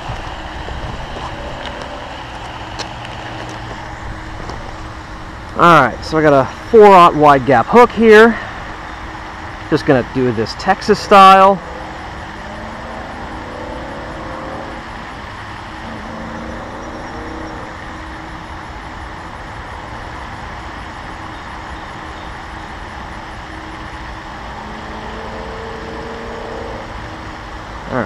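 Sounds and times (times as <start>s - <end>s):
low rumble: 0.0s - 6.8s.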